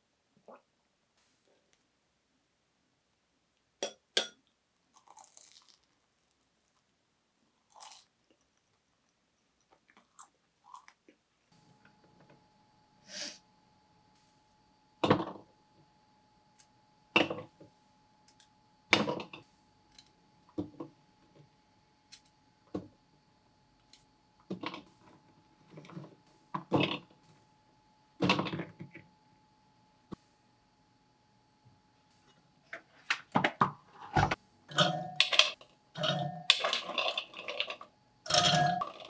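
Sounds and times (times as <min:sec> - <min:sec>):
person sniffling: 0:13.0 - 0:13.4.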